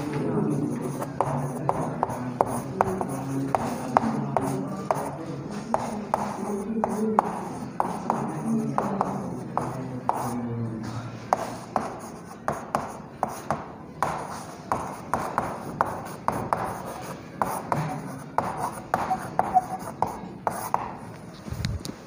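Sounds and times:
chalk on blackboard: 0:00.1 - 0:21.7.

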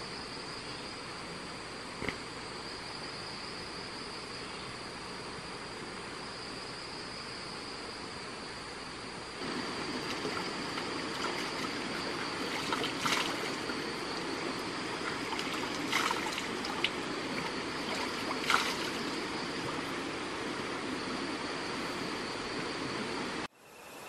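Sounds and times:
stream running over rocks: 0:09.4 - 0:23.5
hands splashing water: 0:09.9 - 0:19.4.

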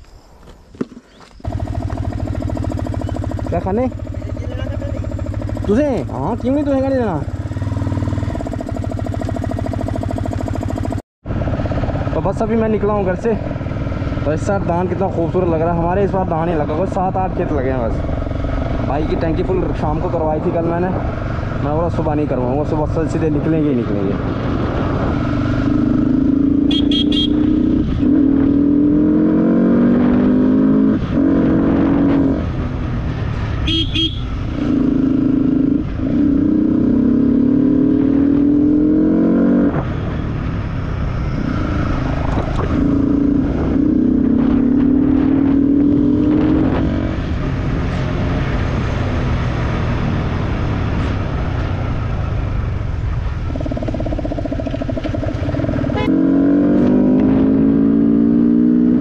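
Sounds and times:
wind and road noise: 0:00.0 - 0:59.0
motorcycle engine shifting gears: 0:00.4 - 0:12.2, 0:24.2 - 0:59.0
horn toot: 0:26.6 - 0:27.8, 0:33.6 - 0:34.4, 0:55.8 - 0:56.3.

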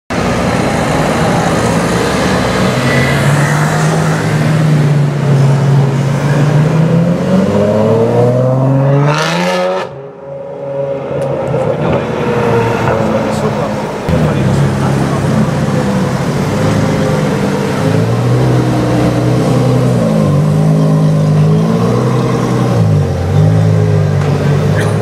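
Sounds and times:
sports car engine accelerating: 0:00.4 - 0:10.0.

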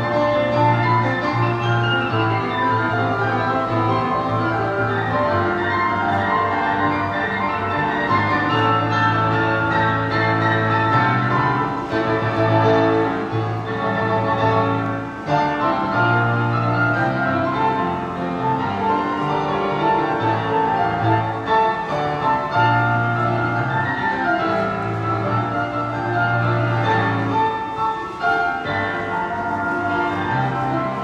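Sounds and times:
piano duet: 0:00.0 - 0:31.0.

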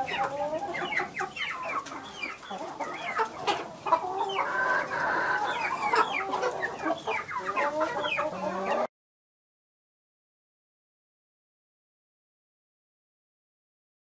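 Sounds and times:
hens clucking: 0:00.0 - 0:08.9.

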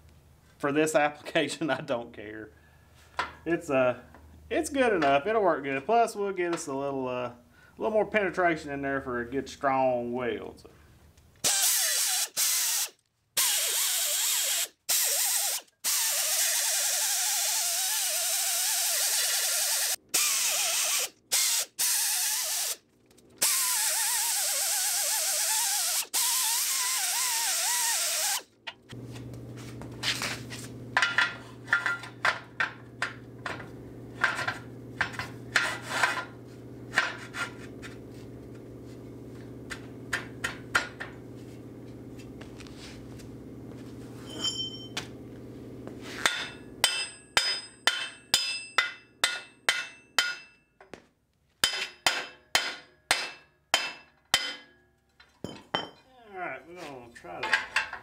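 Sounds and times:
air blow gun hissing: 0:11.5 - 0:22.8, 0:23.4 - 0:28.4
steady low hum: 0:28.7 - 0:47.8.

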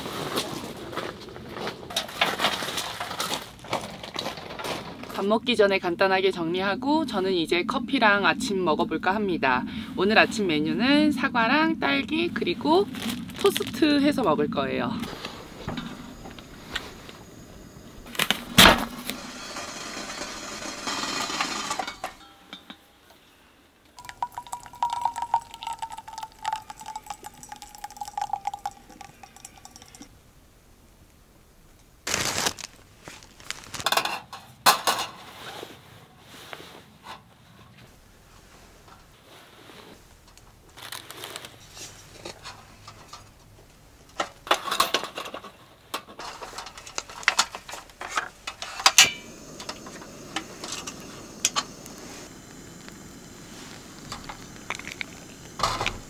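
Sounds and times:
hot water pouring from kettle: 0:18.8 - 0:22.0, 0:24.0 - 0:30.1, 0:48.4 - 0:56.0.

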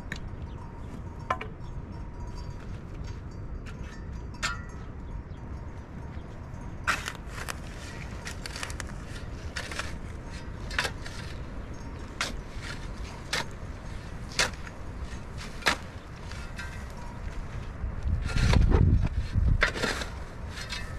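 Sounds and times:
shovel digging stony earth: 0:06.8 - 0:20.9.

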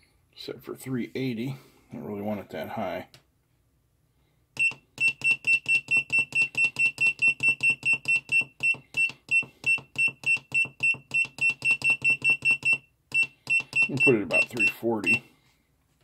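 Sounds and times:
short high buzzer beeps: 0:04.6 - 0:15.2.

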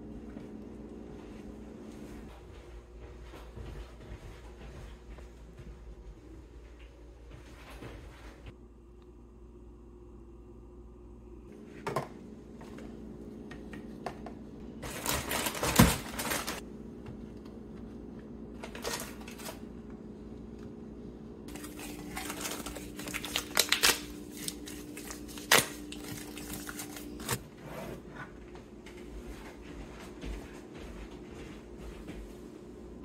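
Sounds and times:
low steady hum: 0:00.0 - 0:33.0
items set down on countertop: 0:11.8 - 0:12.8
plastic bags crinkling: 0:14.7 - 0:16.6, 0:21.5 - 0:27.4.

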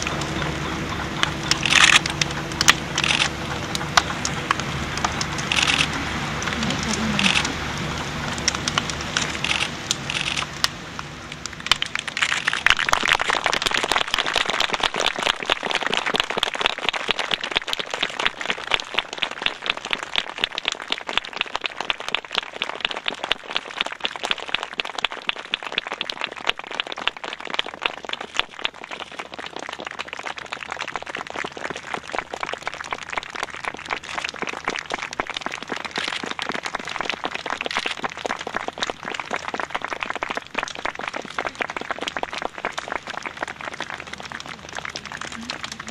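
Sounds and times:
fire crackling and popping: 0:00.0 - 0:45.9.

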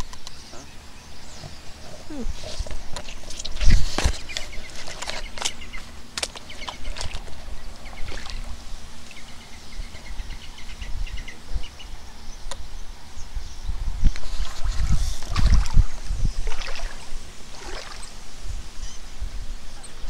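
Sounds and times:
wind rumbling on microphone: 0:00.0 - 0:20.0
water sloshing: 0:03.0 - 0:09.4, 0:14.3 - 0:18.3.

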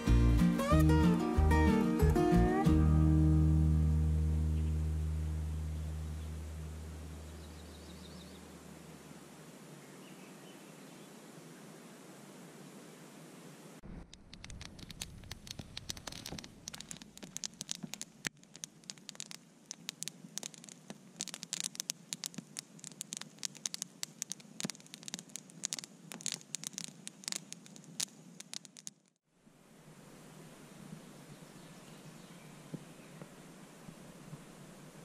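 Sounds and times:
campfire crackling and snapping: 0:13.8 - 0:29.2.

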